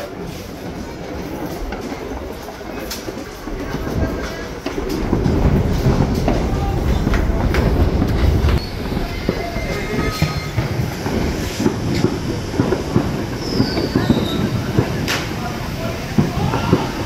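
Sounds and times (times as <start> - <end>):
subway train rumble: 0.0 - 17.0
high wheel squeal: 8.5 - 11.4.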